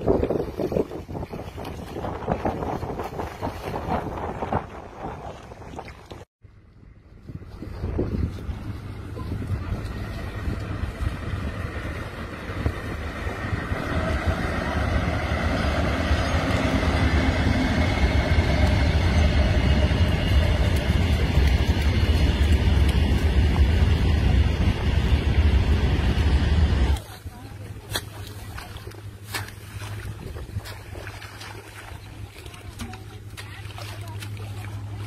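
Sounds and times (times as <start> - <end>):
freight train passing: 7.3 - 27.0.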